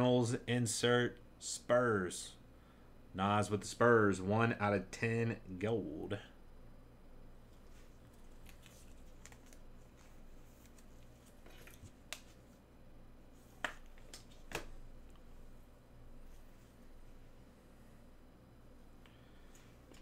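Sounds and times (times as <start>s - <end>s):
cards and wrapper rustling: 7.7s - 12.3s.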